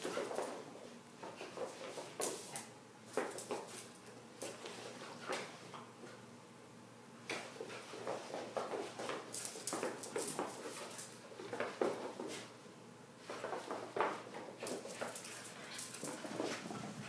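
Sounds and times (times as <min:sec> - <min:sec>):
paws scuffling on tile floor: 0:00.0 - 0:06.2, 0:07.4 - 0:12.6, 0:13.2 - 0:17.0.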